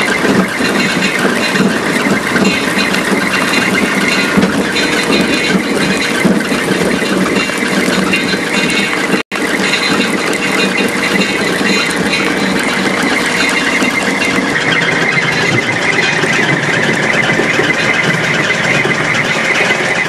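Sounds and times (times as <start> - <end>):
granulator machine running: 0.0 - 20.0.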